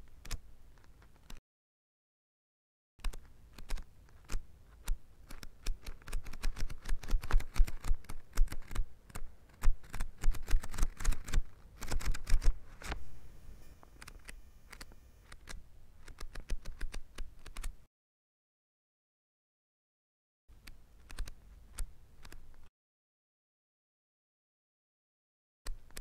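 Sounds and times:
book pages flipping: 3.0s - 13.2s.

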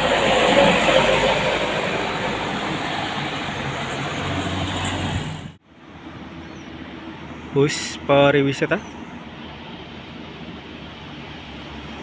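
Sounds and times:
truck passing uphill: 0.0s - 7.6s.

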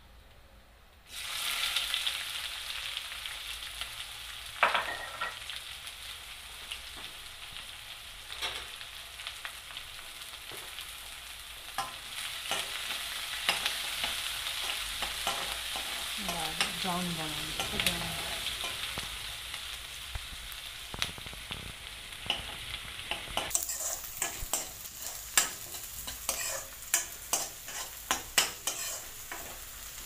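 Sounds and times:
onions sizzling in hot oil: 1.1s - 30.0s
spoon scraping a metal pan: 23.1s - 29.6s.

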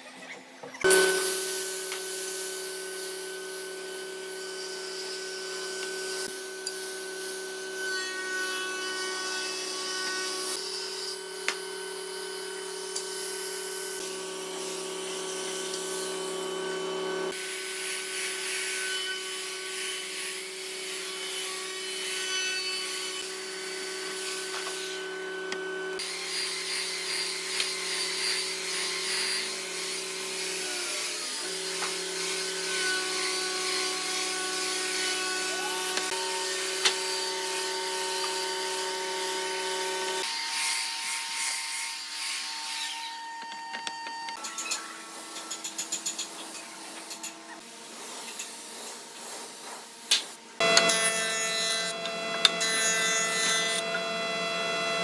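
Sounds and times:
belt sander motor whine: 0.8s - 6.8s
angle grinder sanding wood: 0.9s - 42.9s, 44.8s - 55.0s.

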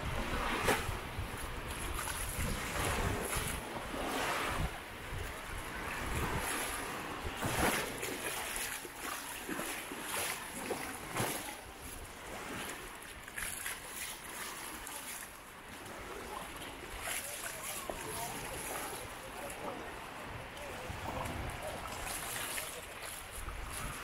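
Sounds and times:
wind buffeting microphone: 0.0s - 8.1s, 17.6s - 24.0s
surf washing on shore: 0.0s - 24.0s.

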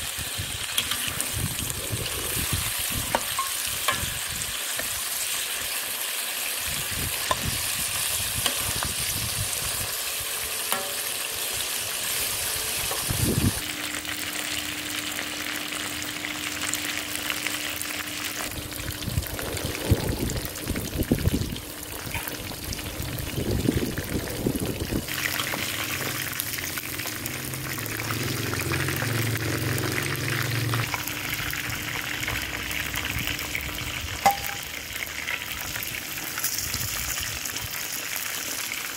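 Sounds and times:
oil sizzling in wok: 0.0s - 38.9s
metal spatula scraping wok: 0.6s - 5.5s, 7.2s - 13.6s.

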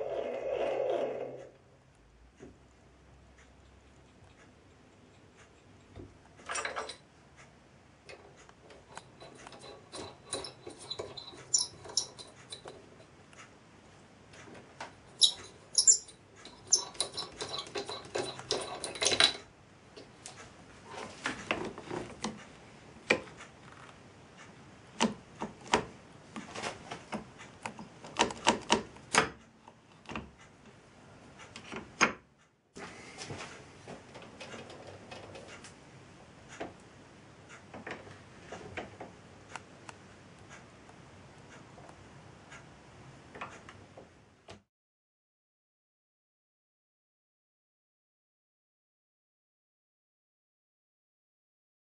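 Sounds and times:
metallic clicks of lathe handles: 15.2s - 19.5s.

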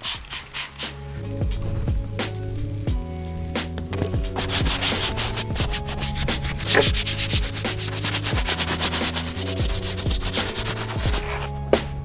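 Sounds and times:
brush scrubbing leather: 0.0s - 1.0s, 4.4s - 11.6s
music with bass-heavy beat: 0.0s - 12.0s.

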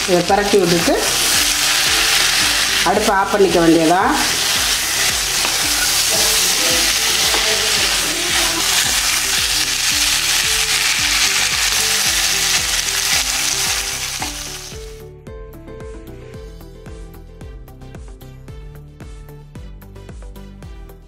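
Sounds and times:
food sizzling in a pan: 0.0s - 15.0s
background music with beat: 0.0s - 21.0s
spatula scraping a pan: 4.2s - 11.2s.

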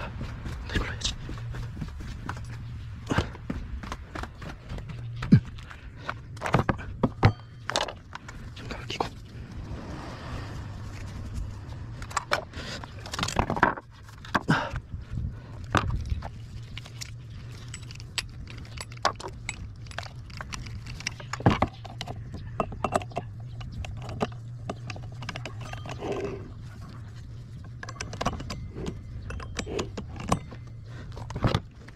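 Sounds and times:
low hum: 0.0s - 31.9s
metallic clinks and clicks: 15.8s - 31.9s.

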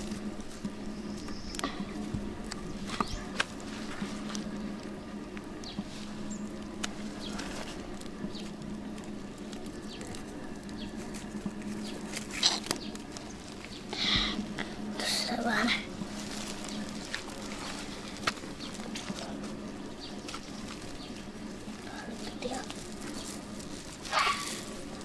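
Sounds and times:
grass and leaves rustling: 0.0s - 25.0s
steady low hum: 0.0s - 25.0s.

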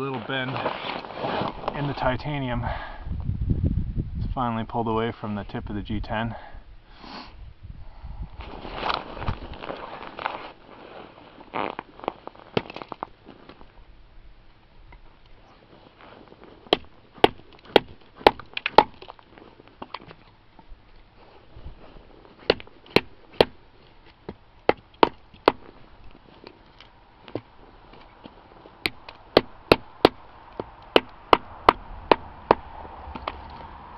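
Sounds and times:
handling rustle: 0.0s - 2.1s, 8.4s - 13.8s, 15.0s - 18.2s, 19.0s - 24.5s, 25.2s - 29.2s.

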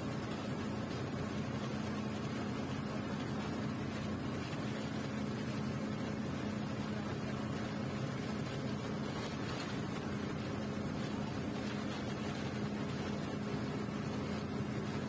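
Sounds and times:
bus engine droning: 0.0s - 15.0s
road and tyre noise: 7.8s - 15.0s.

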